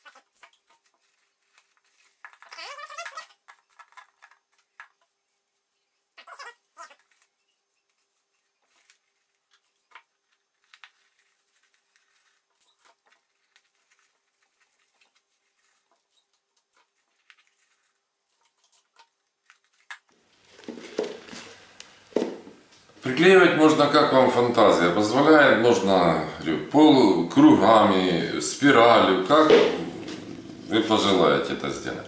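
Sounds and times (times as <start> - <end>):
paper rustling and crinkling: 0.1 - 4.9, 7.0 - 21.8.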